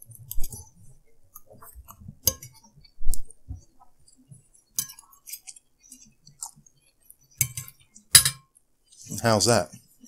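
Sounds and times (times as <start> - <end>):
forks clinking against plates: 7.4 - 8.5.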